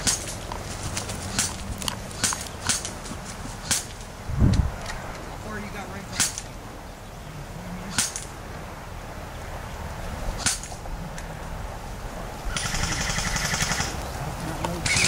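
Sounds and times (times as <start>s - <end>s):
airsoft gun shots: 3.6s - 3.9s, 6.1s - 6.5s, 7.9s - 8.3s, 10.4s - 10.8s
rapid full-auto burst: 12.5s - 14.0s.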